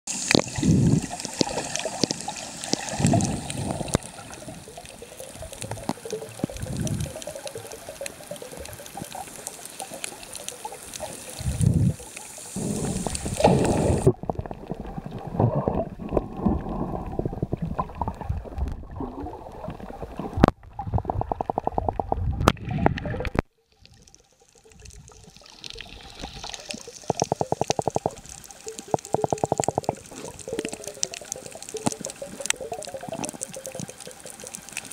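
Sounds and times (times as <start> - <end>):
muffled underwater water sloshing: 10.8 - 34.9.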